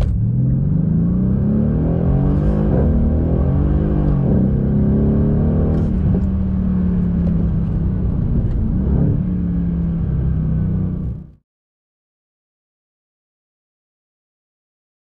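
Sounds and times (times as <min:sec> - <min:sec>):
car engine running hard: 0:00.0 - 0:11.4.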